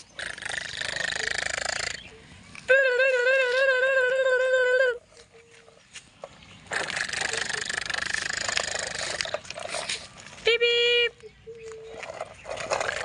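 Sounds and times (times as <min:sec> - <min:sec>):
rough steady noise: 0:00.0 - 0:05.0, 0:06.0 - 0:10.7.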